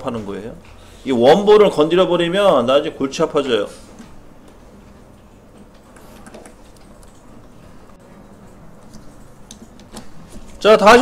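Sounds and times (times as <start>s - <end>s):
computer mouse clicks: 5.5s - 7.5s.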